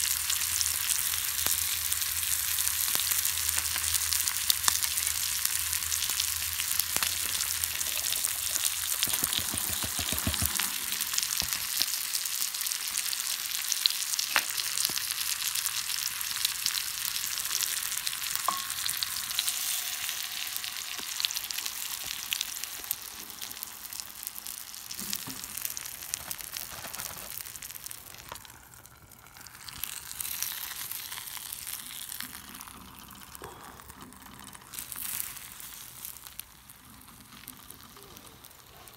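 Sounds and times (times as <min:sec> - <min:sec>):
food sizzling in skillet: 0:00.0 - 0:38.9.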